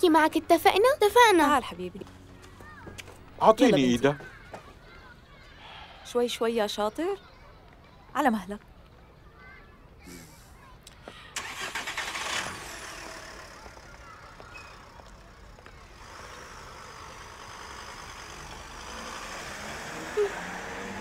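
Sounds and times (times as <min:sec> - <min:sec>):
car engine starting and running: 0:11.4 - 0:14.1, 0:16.0 - 0:21.0.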